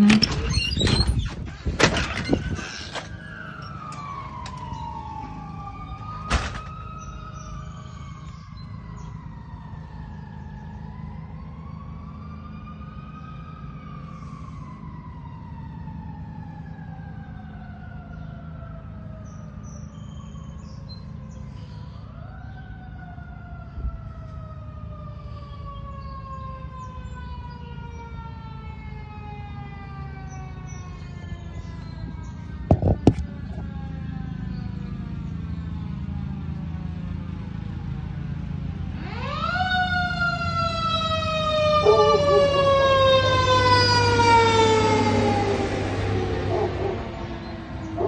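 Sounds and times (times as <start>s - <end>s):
fire truck siren wailing: 0.0s - 48.0s
short bump: 32.6s - 33.7s.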